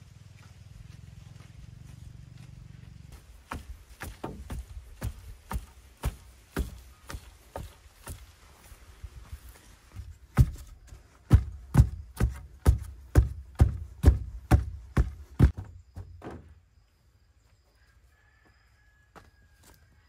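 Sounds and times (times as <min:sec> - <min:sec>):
heavy thuds: 0:10.0 - 0:16.6.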